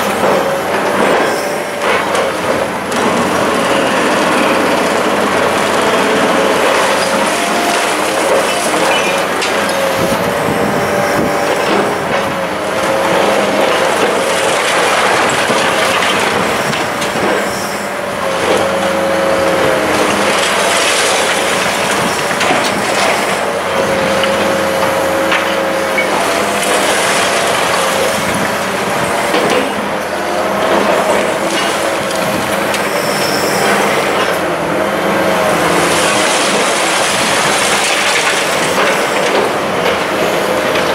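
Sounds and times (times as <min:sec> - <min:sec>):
crushing concrete and falling rubble: 0:12.9 - 0:17.5, 0:19.8 - 0:23.4, 0:35.7 - 0:40.9.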